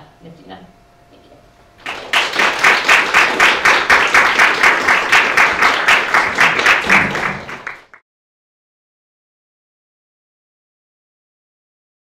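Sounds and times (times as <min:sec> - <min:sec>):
audience applauding: 0:01.8 - 0:08.0
sharp evenly spaced claps: 0:01.8 - 0:08.0.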